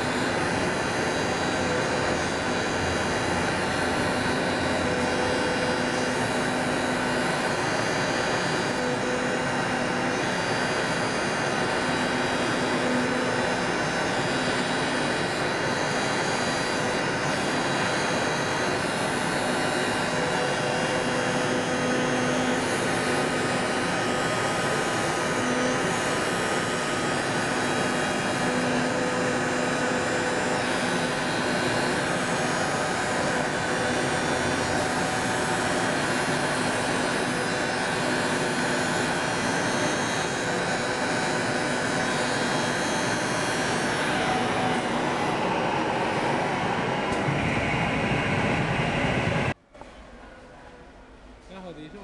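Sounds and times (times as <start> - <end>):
low hum: 46.0 - 52.0.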